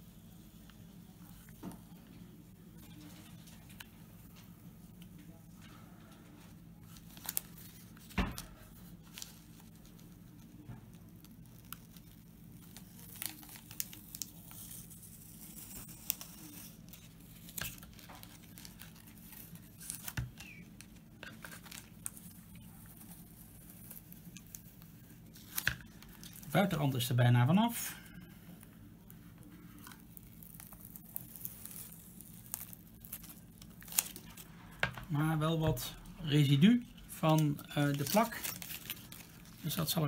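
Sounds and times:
low steady hum: 0:00.0 - 0:40.0
tape peeling crackles: 0:00.4 - 0:35.2, 0:36.7 - 0:40.0.

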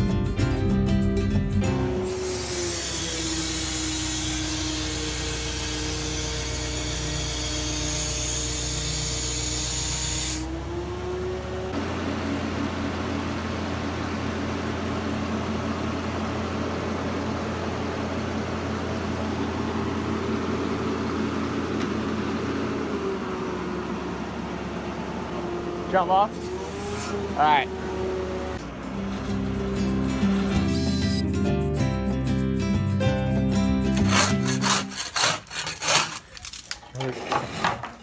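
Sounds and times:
engine running steadily: 0:10.4 - 0:31.7.

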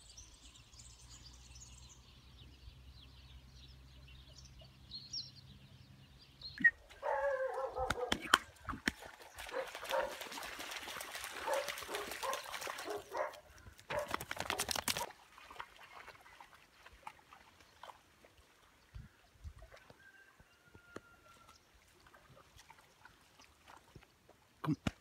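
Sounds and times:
splashing through shallow water: 0:06.6 - 0:20.1, 0:20.8 - 0:25.0
dog barking and yelping: 0:07.0 - 0:08.5, 0:09.5 - 0:10.1, 0:11.4 - 0:14.7
faint water trickles: 0:08.5 - 0:13.9, 0:15.0 - 0:24.7.

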